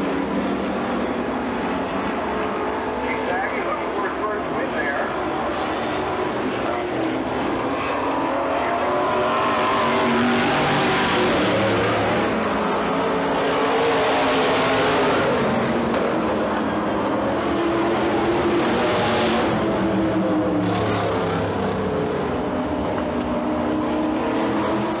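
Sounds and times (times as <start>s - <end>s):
race car engines passing: 0.0s - 25.0s.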